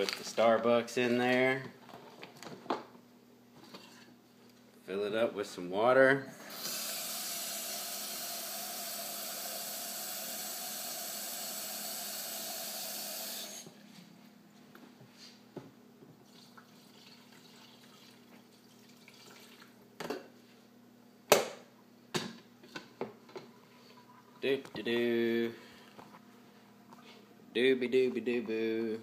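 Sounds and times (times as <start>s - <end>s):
faucet filling glass carafe: 16.3s - 19.7s.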